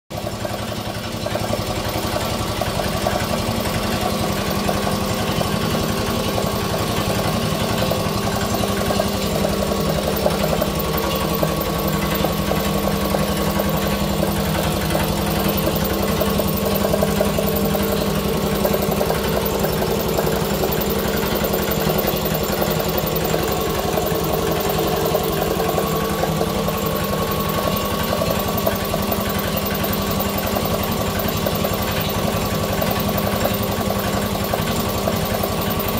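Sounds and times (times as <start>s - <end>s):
air compressor pump beating: 0.1s - 35.9s
electric motor hum: 1.7s - 35.9s.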